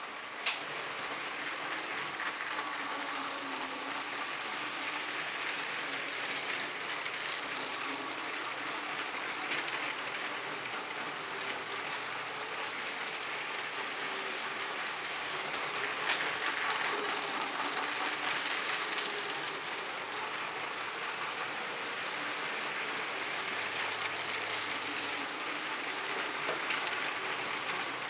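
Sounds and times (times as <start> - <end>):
toy train wheels rattling on track: 0.4 - 28.0.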